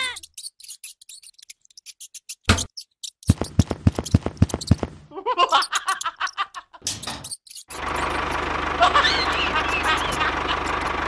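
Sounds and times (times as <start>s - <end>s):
cartoon laugh sound effect: 5.1s - 6.9s, 8.8s - 10.7s.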